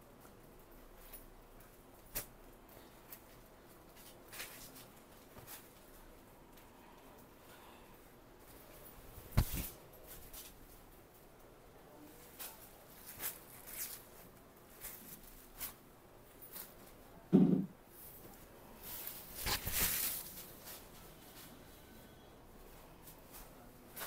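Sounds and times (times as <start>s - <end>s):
silk fabric rustling: 12.2s - 17.0s, 18.7s - 21.5s.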